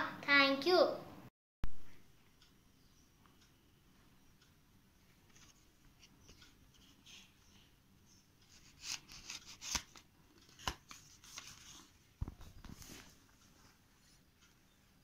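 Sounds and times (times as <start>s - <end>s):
paper card rustling: 8.5s - 13.2s
paper snapping: 8.9s - 11.5s.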